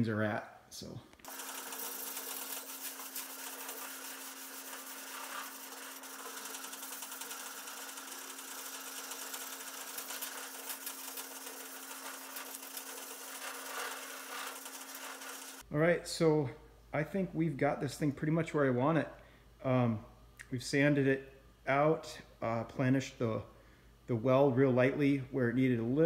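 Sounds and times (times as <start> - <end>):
sandpaper rasping on metal: 1.3 - 15.6.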